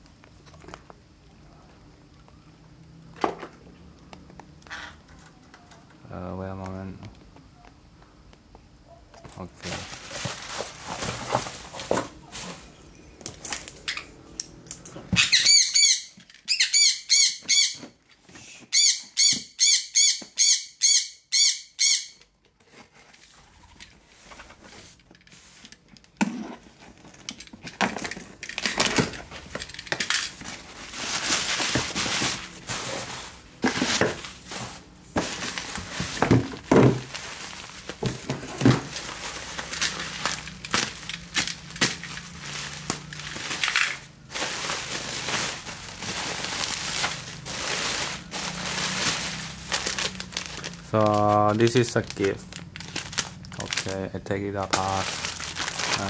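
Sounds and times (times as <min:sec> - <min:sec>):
cardboard and bubble wrap rustling: 0:09.2 - 0:13.9, 0:22.5 - 0:56.0
packing tape ripped off box: 0:24.8 - 0:53.9, 0:54.6 - 0:56.0.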